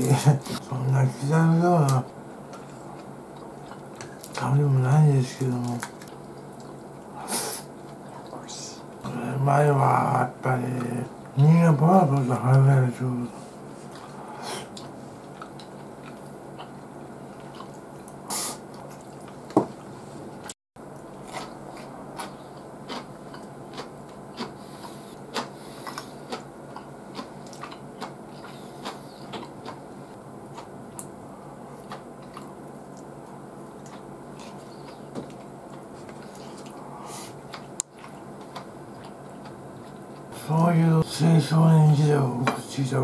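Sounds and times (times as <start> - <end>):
person chewing: 2.0 - 4.4, 5.6 - 9.1, 13.6 - 40.3.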